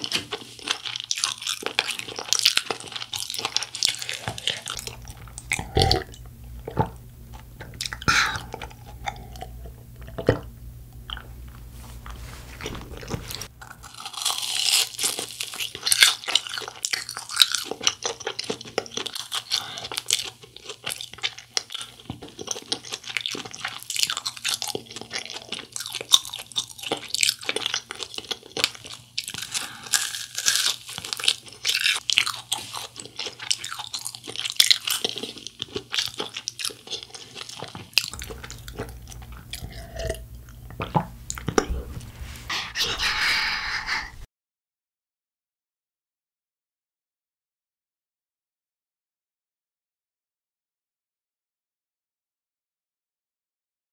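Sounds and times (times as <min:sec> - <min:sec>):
crunching and chewing food: 0:00.0 - 0:42.0.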